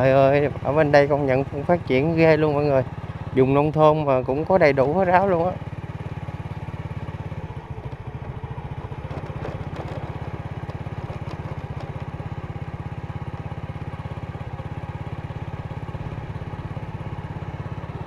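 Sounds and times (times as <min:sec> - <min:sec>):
small motorcycle engine running: 0:00.0 - 0:18.0.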